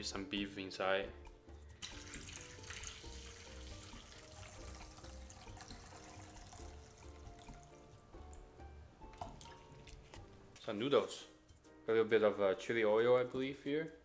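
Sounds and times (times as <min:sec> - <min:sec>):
quiet background music: 0:00.0 - 0:14.0
liquid pouring into bowl: 0:01.8 - 0:08.4, 0:09.2 - 0:10.0.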